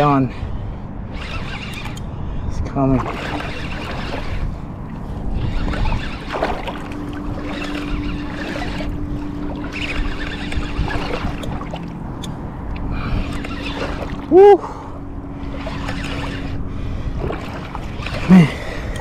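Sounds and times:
fishing reel cranking: 0:00.0 - 0:02.2, 0:02.9 - 0:14.4, 0:15.3 - 0:19.0
wind noise: 0:00.0 - 0:14.4
low steady hum: 0:00.0 - 0:19.0
water sloshing: 0:02.9 - 0:19.0.

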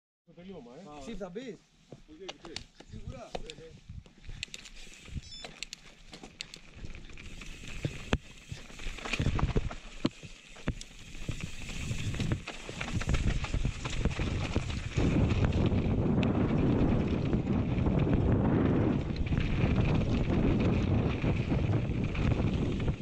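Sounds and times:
bike clicks and knocks: 0:02.2 - 0:17.6
tyres rolling over gravel: 0:05.8 - 0:23.0
wind buffeting microphone: 0:10.6 - 0:23.0.

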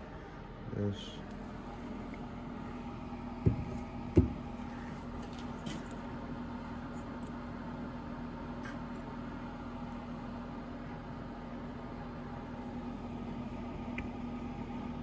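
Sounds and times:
steady low hum: 0:00.0 - 0:15.0
dull knocks on wooden bench: 0:03.4 - 0:04.6.

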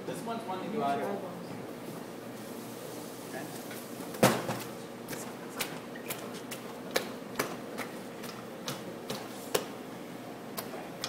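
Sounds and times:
hand slapping batter in a bowl: 0:04.2 - 0:09.8, 0:10.5 - 0:11.0.

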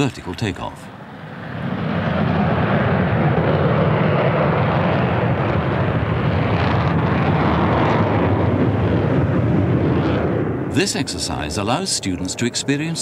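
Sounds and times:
jet fighter engines climbing: 0:00.0 - 0:13.0.

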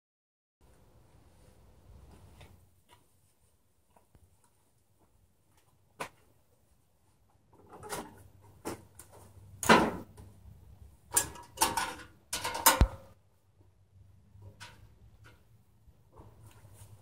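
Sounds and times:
hands clunking and rattling parts: 0:11.1 - 0:13.2.

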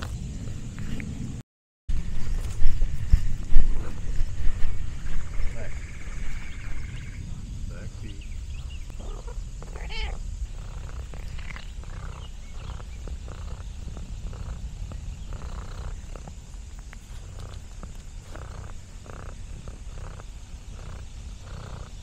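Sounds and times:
cat purring: 0:02.0 - 0:22.0
cat call: 0:09.0 - 0:10.2.

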